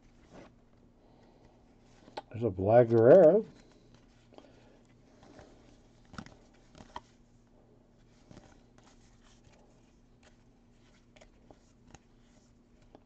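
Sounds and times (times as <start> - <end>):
low steady hum: 0.0 - 13.0
trading cards flipped by hand: 2.0 - 4.2, 5.1 - 7.2, 8.1 - 13.0.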